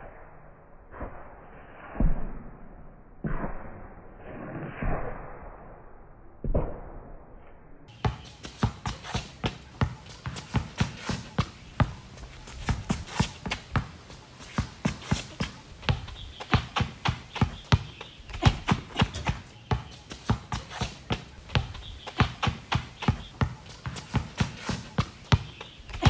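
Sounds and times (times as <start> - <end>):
basketball bouncing on concrete: 7.9 - 26.0.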